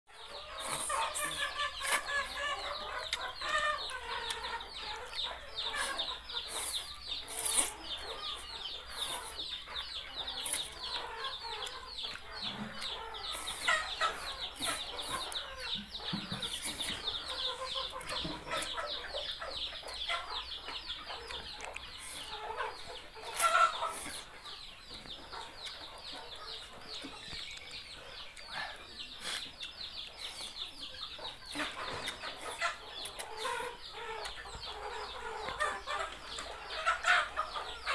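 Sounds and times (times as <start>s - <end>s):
rapid high chirping: 0.2s - 37.9s
noodles slurped and chewed: 6.5s - 7.8s.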